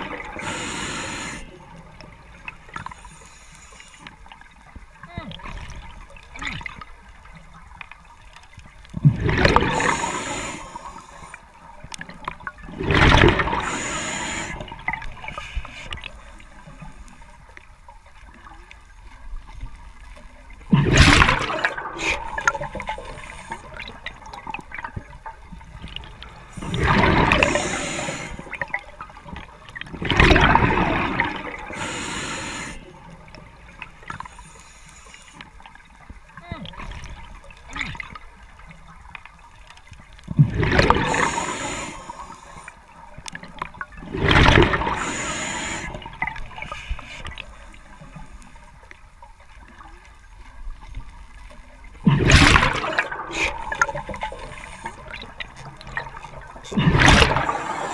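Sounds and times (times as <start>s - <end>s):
diver exhaling bubbles underwater: 9.0s - 11.0s, 12.7s - 15.0s, 26.6s - 28.8s, 29.9s - 32.8s, 40.4s - 42.2s, 52.0s - 57.9s.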